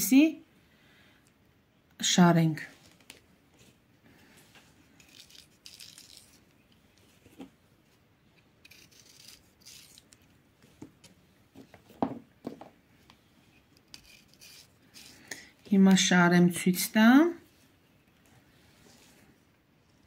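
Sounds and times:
knife slitting bean pods: 0:08.6 - 0:10.3.

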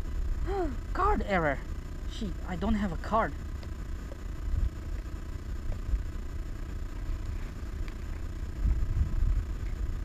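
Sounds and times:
wind buffeting microphone: 0:08.2 - 0:10.0.

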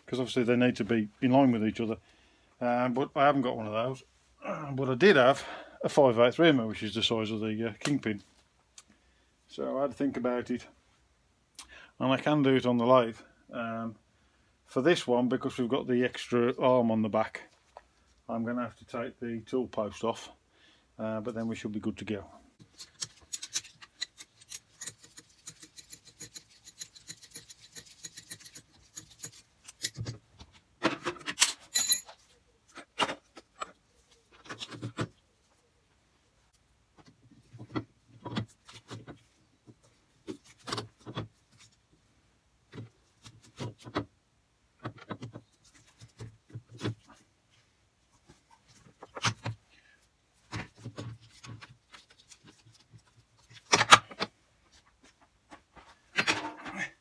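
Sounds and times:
metal tools clinking and scraping: 0:22.7 - 0:30.2, 0:30.9 - 0:33.8.

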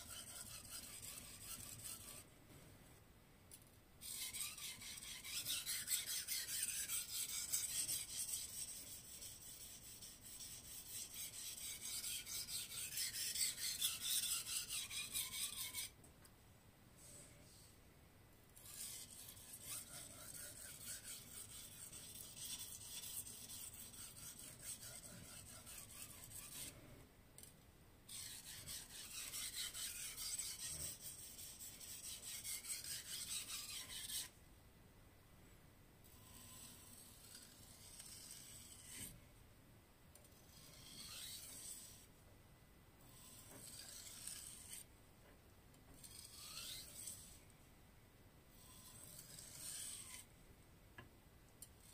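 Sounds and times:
knife grinding on whetstone: 0:00.0 - 0:02.2, 0:04.0 - 0:15.9, 0:18.6 - 0:26.8, 0:28.1 - 0:34.3, 0:36.1 - 0:39.2, 0:40.3 - 0:42.1, 0:43.1 - 0:44.9, 0:46.0 - 0:47.4, 0:48.6 - 0:50.3.

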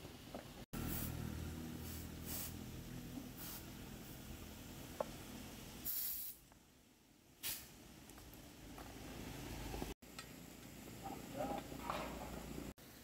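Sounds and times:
compressed air hissing: 0:00.8 - 0:04.6, 0:05.8 - 0:06.5, 0:07.4 - 0:07.8.

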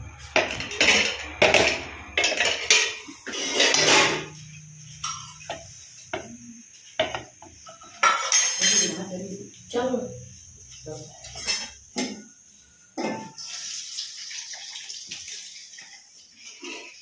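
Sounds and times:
metal cookware clattering: 0:00.0 - 0:09.4, 0:11.0 - 0:12.3, 0:13.0 - 0:13.8.

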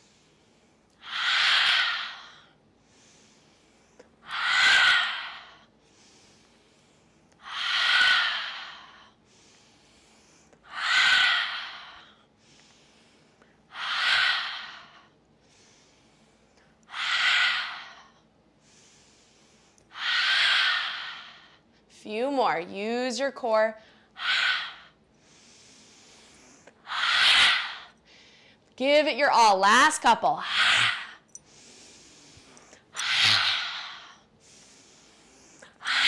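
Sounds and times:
woman exhaling forcefully: 0:04.3 - 0:05.5, 0:30.4 - 0:31.2, 0:33.0 - 0:34.0.

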